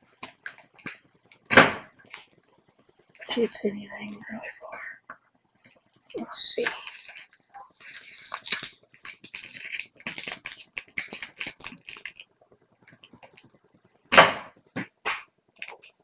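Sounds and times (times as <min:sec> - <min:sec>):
catapult arm snapping: 0:14.1 - 0:15.2.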